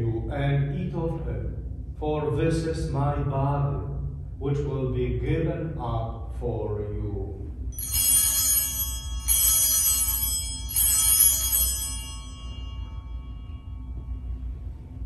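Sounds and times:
altar bells ringing: 7.7s - 15.0s.

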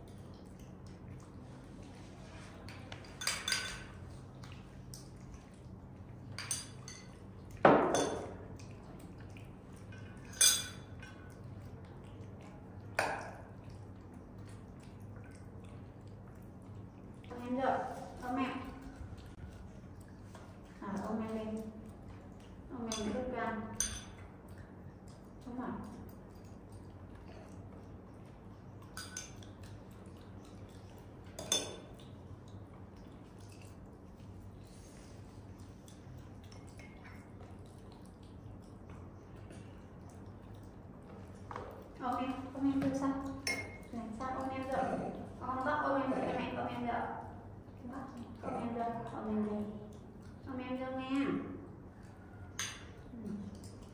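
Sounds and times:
faint low hum: 0.0s - 53.9s
utensil clinking against dish: 2.6s - 4.0s, 6.3s - 8.4s, 9.8s - 11.4s, 22.8s - 24.3s, 28.8s - 29.5s, 31.2s - 32.0s, 42.7s - 44.8s, 52.5s - 53.0s.

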